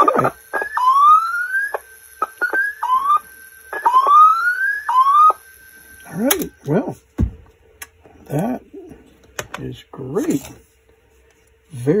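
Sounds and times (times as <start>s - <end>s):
rising whistling glides from tape: 0.5s - 5.5s.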